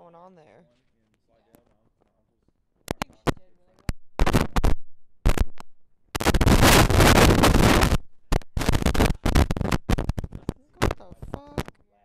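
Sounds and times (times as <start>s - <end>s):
rubbing on microphone: 0.6s - 11.8s
microphone handling thumps: 2.8s - 11.8s.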